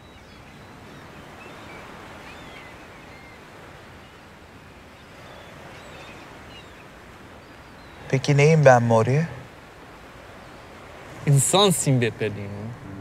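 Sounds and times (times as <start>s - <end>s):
faint high bird chirps: 0.0s - 4.2s, 4.8s - 8.2s
wind: 0.0s - 13.0s
water washing: 11.1s - 13.0s.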